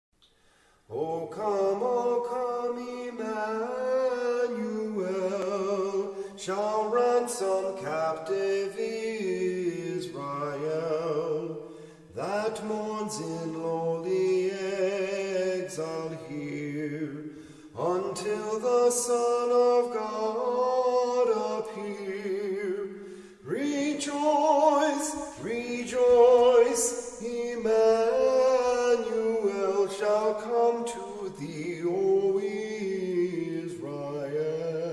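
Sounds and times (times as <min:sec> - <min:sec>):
unaccompanied voices singing: 0:23.6 - 0:34.9.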